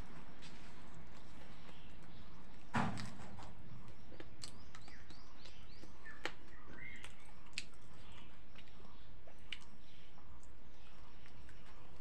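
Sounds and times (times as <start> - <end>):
small birds chirping: 0.0 - 12.0
person chewing: 3.8 - 12.0.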